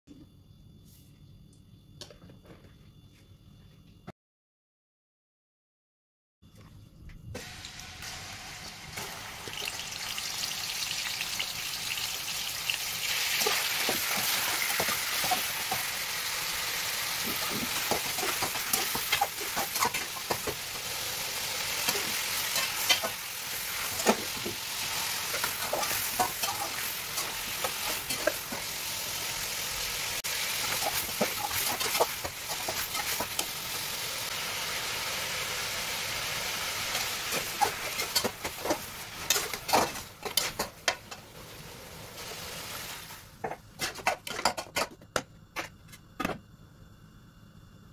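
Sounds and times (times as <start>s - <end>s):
meat sizzling in hot oil: 7.4s - 43.3s.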